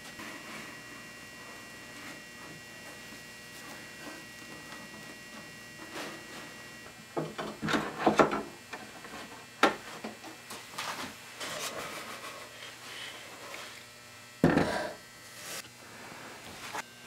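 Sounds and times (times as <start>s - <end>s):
wood scraping on wood: 0.0s - 7.6s.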